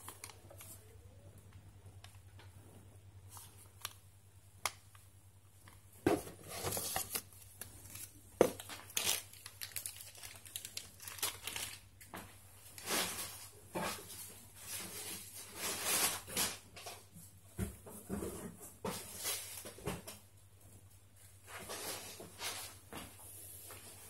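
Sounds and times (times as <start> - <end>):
packaging crinkling and rustling: 0.0 - 0.9, 5.7 - 17.0.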